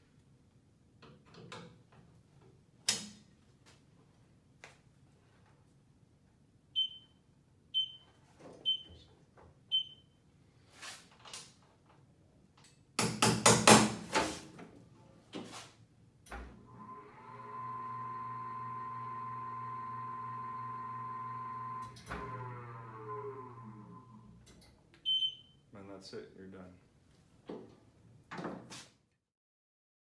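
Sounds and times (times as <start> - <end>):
motor spinning with whine: 16.6 - 24.3
wheel balancer beeping: 16.6 - 24.3.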